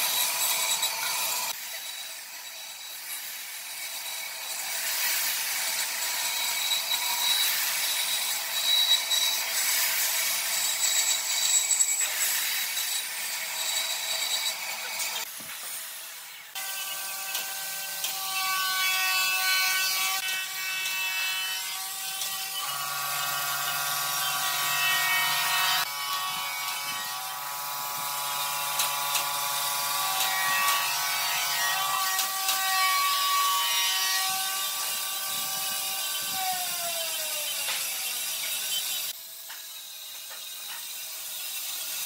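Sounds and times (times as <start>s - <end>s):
angle grinder motor whine: 21.6s - 33.2s, 34.2s - 41.8s.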